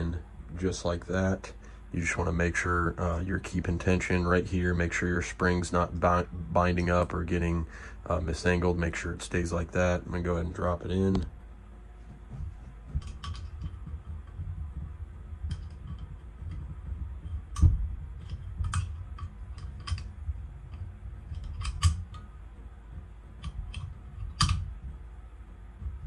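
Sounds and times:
low handling rumble: 0.0 - 26.0
small metallic clicks and taps: 12.9 - 22.4, 23.3 - 25.0.

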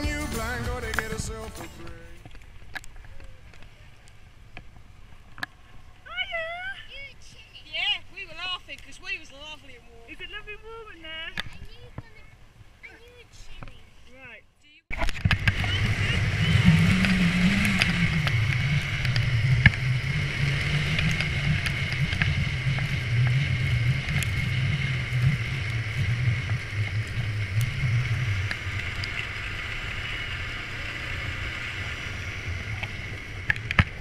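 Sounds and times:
snowmobile engine running: 0.0 - 2.2, 14.9 - 34.0
wind rushing over microphone: 14.9 - 34.0.

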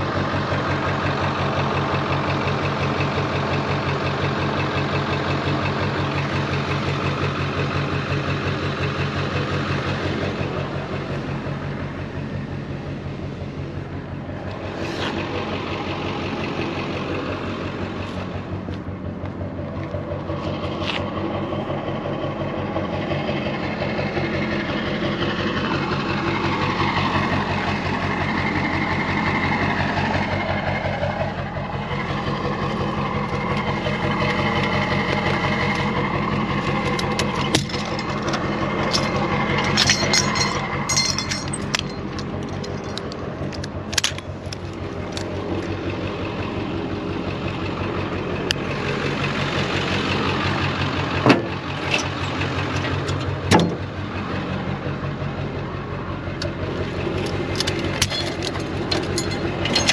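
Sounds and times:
truck engine idling: 0.0 - 59.9
strap clicks and rattles: 36.6 - 45.8, 56.4 - 59.9.

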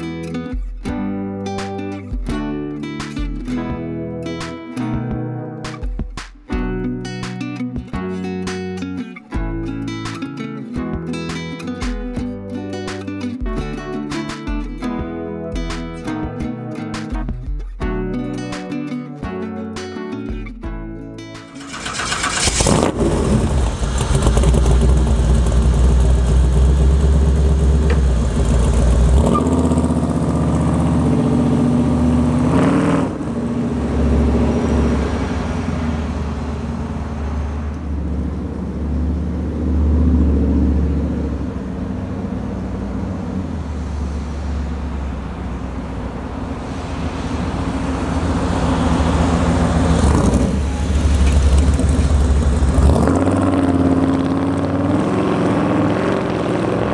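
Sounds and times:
truck engine revving: 21.5 - 56.9.

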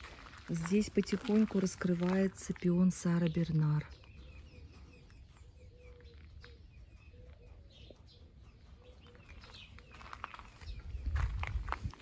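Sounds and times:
high bird chirps: 3.2 - 11.6.

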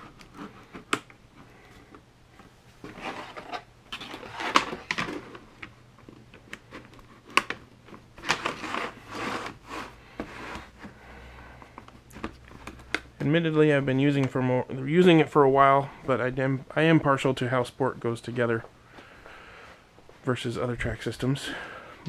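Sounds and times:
plastic track pieces sliding on board: 8.2 - 10.7.

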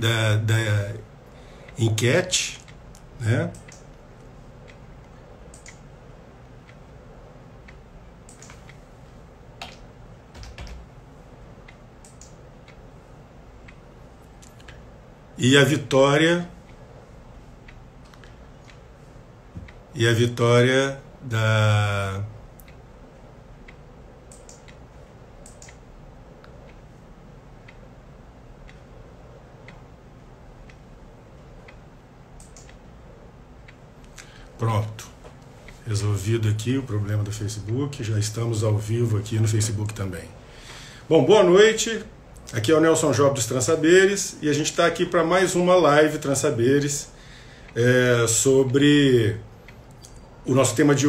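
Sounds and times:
low room hum: 0.0 - 51.0
clock ticking faintly: 1.2 - 10.0, 10.8 - 15.0, 15.6 - 41.0
sharp clicks: 2.6 - 4.0, 4.6 - 7.0, 7.6 - 8.8, 11.7 - 12.8, 23.7 - 24.8, 25.4 - 26.8, 32.4 - 32.9
keyboard typing clicks: 5.5 - 5.9, 7.7 - 8.8, 9.6 - 10.9, 11.7 - 12.8, 23.7 - 24.8, 25.4 - 25.8, 32.4 - 32.8.

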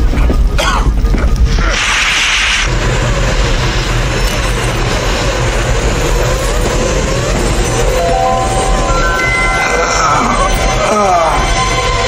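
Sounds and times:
loud hiss: 1.4 - 6.9
vehicle rumbling in tunnel: 2.7 - 12.0
faint wavering tones: 7.4 - 12.0.

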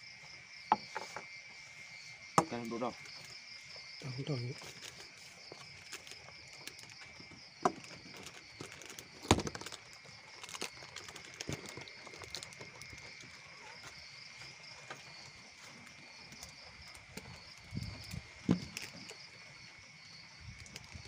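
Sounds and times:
insects chirping at night: 0.0 - 21.0
handling clicks and knocks: 4.5 - 14.0, 14.8 - 19.2.

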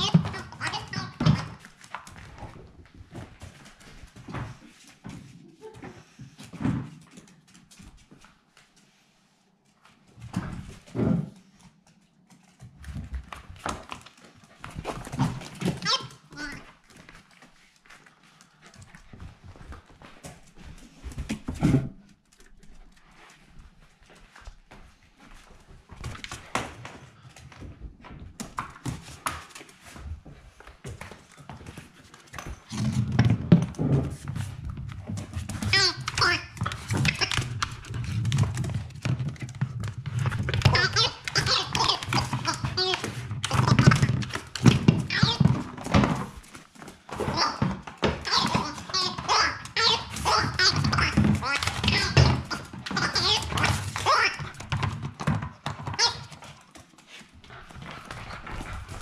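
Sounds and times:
puppy scrambling and thumping: 12.6 - 16.0, 27.6 - 59.0.

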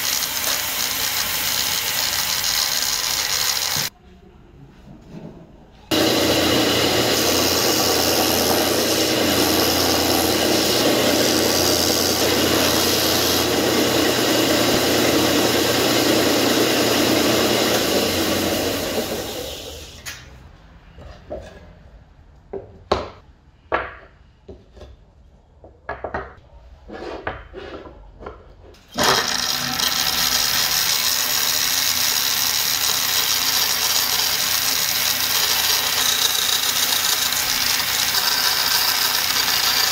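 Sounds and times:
bandsaw cutting wood: 0.0 - 3.9, 5.9 - 19.6, 28.9 - 39.9
belt sander running: 0.0 - 3.9, 5.9 - 19.8, 29.0 - 39.9.

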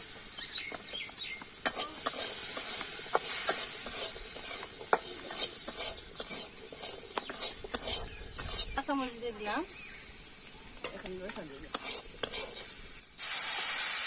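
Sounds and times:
potatoes sizzling in oil: 0.0 - 14.0
metal spatula scraping a pan: 1.6 - 9.6, 10.8 - 13.0.

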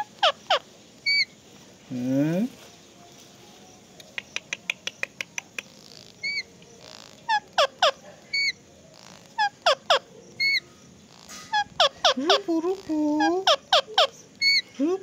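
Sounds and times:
parakeet high chirps: 0.0 - 1.4, 4.1 - 14.8
parakeet sharp clicks: 4.0 - 5.8.

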